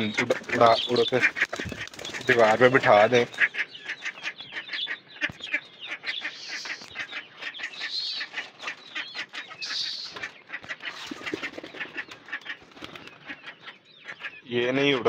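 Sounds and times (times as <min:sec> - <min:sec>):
small birds chirping: 0:00.0 - 0:15.0
high hissing rustles: 0:06.3 - 0:06.9.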